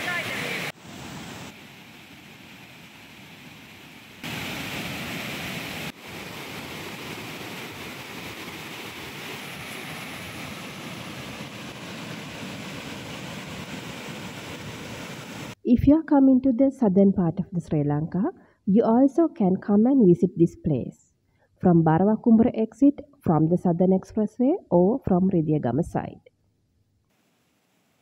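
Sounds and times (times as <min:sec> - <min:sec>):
water rushing through rapids: 0:00.0 - 0:01.5, 0:04.2 - 0:15.6.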